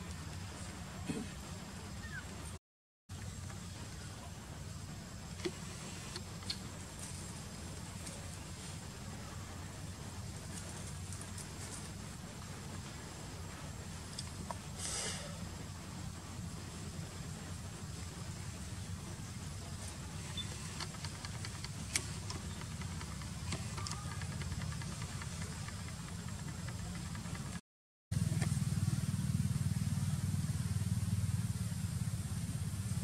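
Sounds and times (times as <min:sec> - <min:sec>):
steady low rumble: 0:00.0 - 0:27.6
engine humming: 0:00.0 - 0:33.0.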